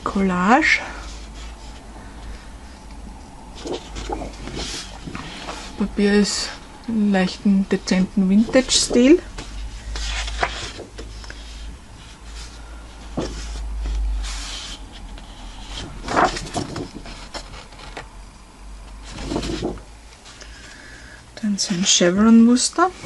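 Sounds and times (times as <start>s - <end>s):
cardstock rustling and scraping: 3.6s - 6.6s, 7.2s - 18.1s, 19.0s - 20.4s.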